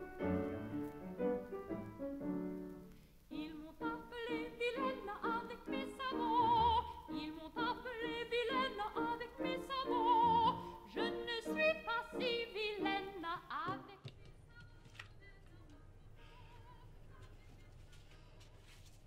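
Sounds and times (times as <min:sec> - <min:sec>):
classical music: 0:00.0 - 0:13.9
operatic singing voice: 0:03.3 - 0:17.6.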